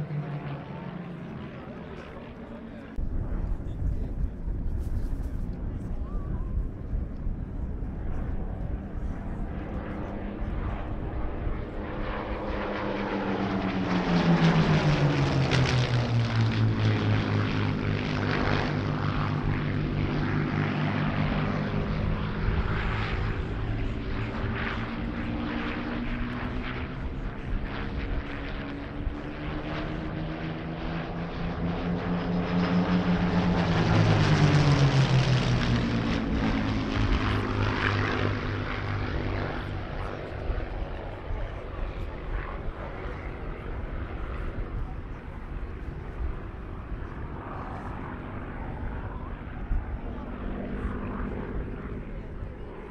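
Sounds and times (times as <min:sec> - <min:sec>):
propeller planes flying past: 0:00.0 - 0:52.9.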